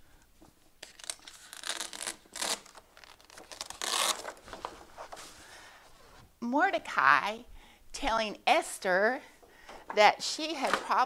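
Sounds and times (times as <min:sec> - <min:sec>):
large paper sheet rustling: 0:02.9 - 0:05.5.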